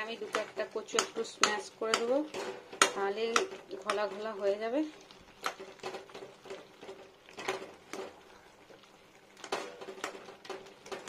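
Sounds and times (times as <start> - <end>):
metal spatula scraping a metal pan: 1.2 - 4.3.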